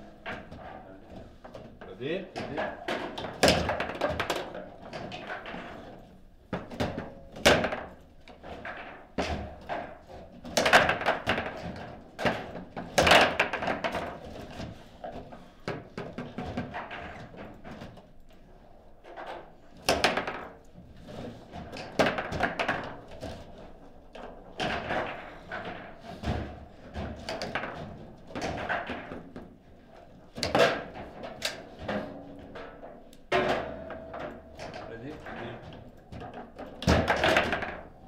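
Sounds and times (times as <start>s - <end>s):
foosball ball striking: 33.3s - 34.7s.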